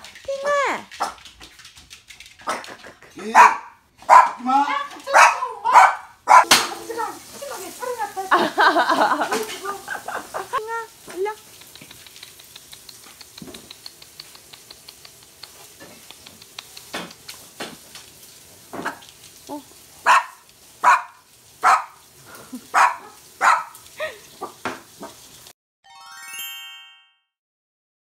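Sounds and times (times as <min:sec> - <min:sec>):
small dog barking: 0:03.2 - 0:06.7, 0:19.6 - 0:22.0, 0:22.7 - 0:23.8.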